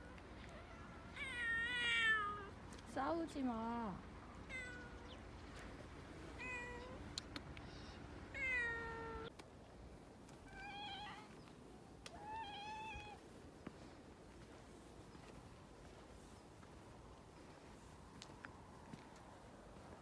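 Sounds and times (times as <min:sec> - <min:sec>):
cats meowing: 0:00.4 - 0:02.5, 0:04.4 - 0:05.2, 0:06.3 - 0:07.0, 0:08.3 - 0:09.3, 0:10.4 - 0:11.4, 0:12.1 - 0:13.2.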